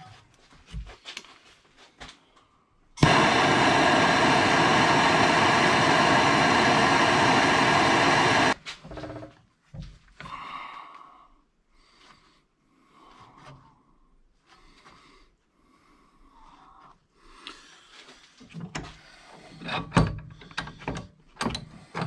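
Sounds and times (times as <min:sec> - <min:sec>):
gas torch hissing: 0:03.0 - 0:08.6
gas torch lighting pop: 0:03.0 - 0:08.6.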